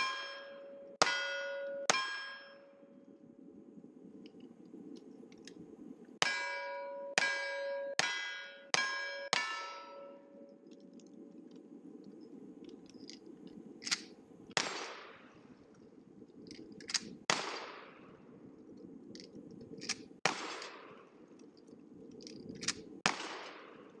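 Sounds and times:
sharp click: 0:13.8 - 0:14.1
shotgun shots echoing: 0:14.6 - 0:15.4, 0:17.3 - 0:18.1, 0:20.2 - 0:21.1, 0:23.0 - 0:23.9.

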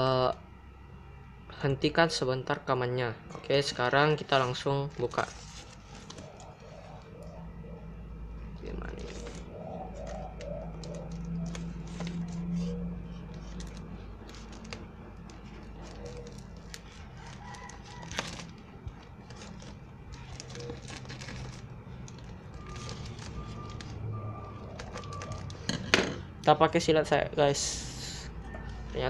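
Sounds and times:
plastic mailer rustling: 0:04.2 - 0:07.2, 0:08.6 - 0:25.7.

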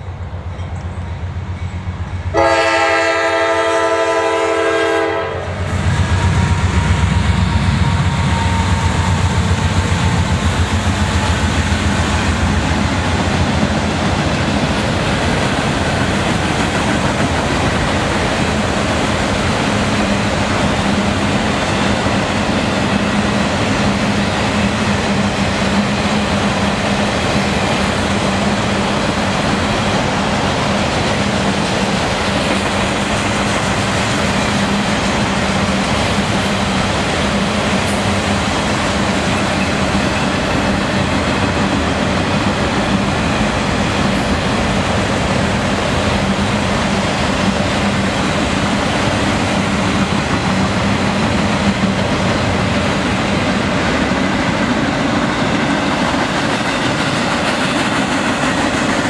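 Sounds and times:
locomotive engines rumbling: 0:00.0 - 0:59.0
train wheels clacking on rails: 0:00.0 - 0:59.0
train air horn blast: 0:02.3 - 0:06.6.

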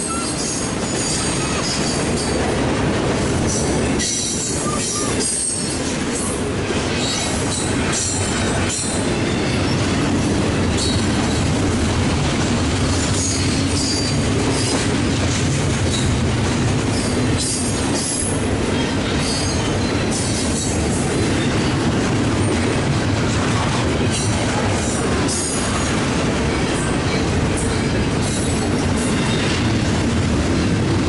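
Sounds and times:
high wheel squeals: 0:00.0 - 0:02.4, 0:04.1 - 0:05.8
train wheels rumbling on rails: 0:00.0 - 0:31.0.

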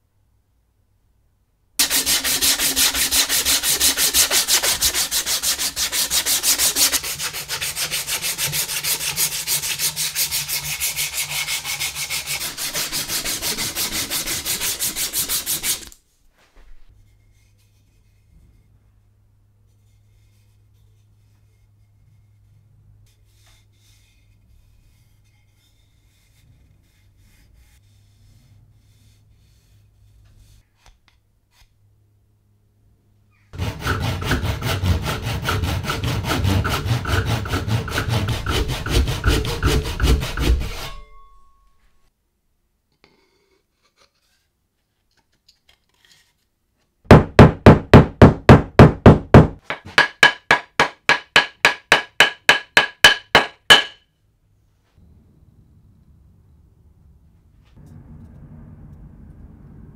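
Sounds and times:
rubbing on wood: 0:01.8 - 0:15.9, 0:33.6 - 0:41.0
hand tool strokes across wood: 0:01.8 - 0:16.0, 0:33.6 - 0:41.2.

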